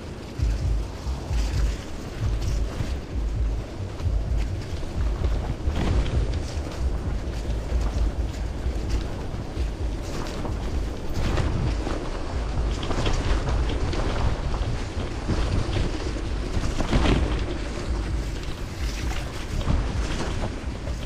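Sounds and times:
bicycle tyres crunching on wet gravel: 0:00.0 - 0:21.0
bike rattling over stones: 0:00.0 - 0:21.0
wind rumble on microphone: 0:00.0 - 0:21.0.

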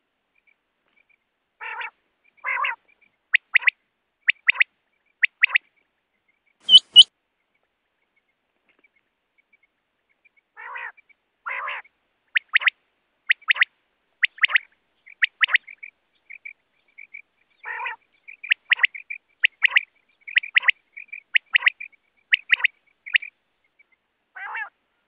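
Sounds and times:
quail calling: 0:01.6 - 0:05.6, 0:06.7 - 0:07.1, 0:10.6 - 0:23.3, 0:24.4 - 0:24.8.

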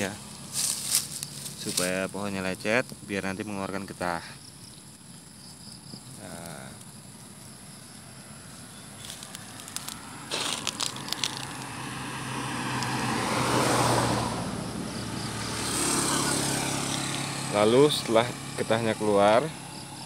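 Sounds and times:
vehicle passing on road: 0:00.0 - 0:02.3, 0:07.0 - 0:20.0.

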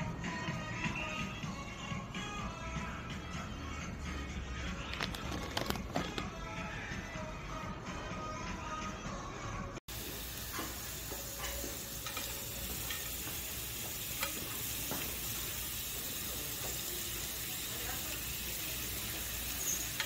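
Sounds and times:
meat sizzling on grill: 0:09.9 - 0:20.0.

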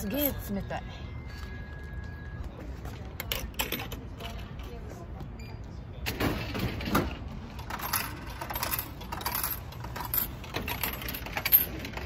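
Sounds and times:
coins clinking: 0:07.6 - 0:12.0.

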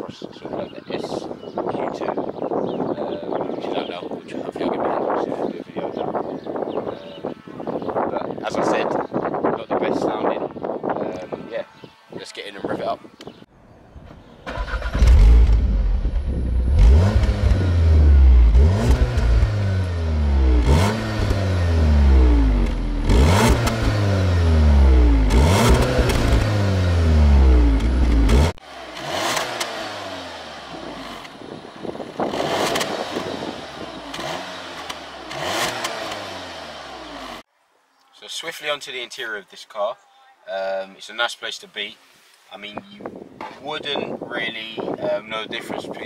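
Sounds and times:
car engine revving: 0:14.5 - 0:37.4.

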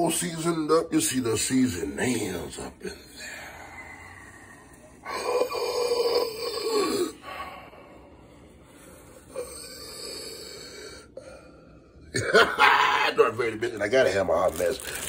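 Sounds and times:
person breathing: 0:02.8 - 0:06.0, 0:06.6 - 0:12.0.

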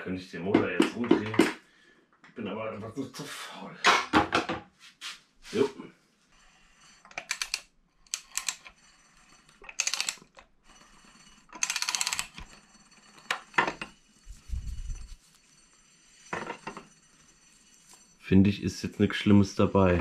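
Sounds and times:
ratchet clicking: 0:07.1 - 0:08.7, 0:09.6 - 0:10.4, 0:11.5 - 0:12.5.

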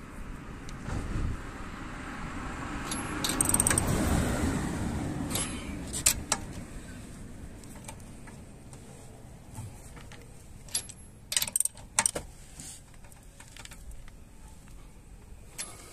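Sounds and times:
vehicle noise: 0:00.0 - 0:15.9
wrench and bolts clinking: 0:02.8 - 0:03.9, 0:05.3 - 0:06.5, 0:10.0 - 0:12.3, 0:15.5 - 0:15.9.

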